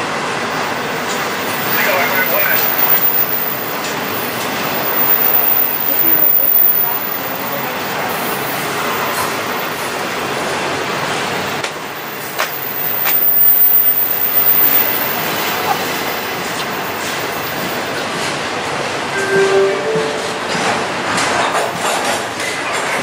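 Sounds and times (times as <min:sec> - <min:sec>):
train wheels rumbling on rails: 0:00.0 - 0:19.2, 0:19.8 - 0:23.0
sharp rail clicks: 0:11.6 - 0:15.4.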